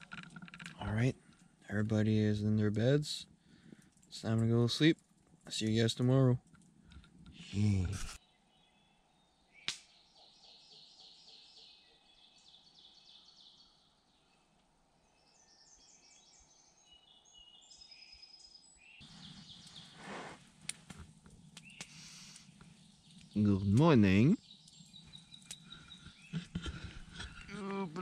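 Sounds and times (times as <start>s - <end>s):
songbirds chirping: 0.0s - 28.0s
soft rustle: 19.0s - 23.4s.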